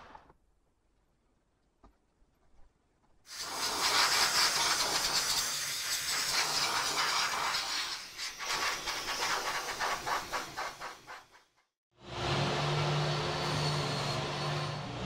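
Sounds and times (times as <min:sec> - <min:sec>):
heat gun hissing: 0:03.3 - 0:11.5.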